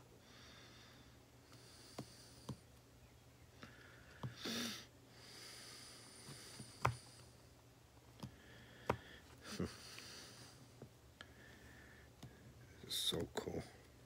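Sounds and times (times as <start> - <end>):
nose breathing: 3.6 - 7.3, 8.2 - 10.6.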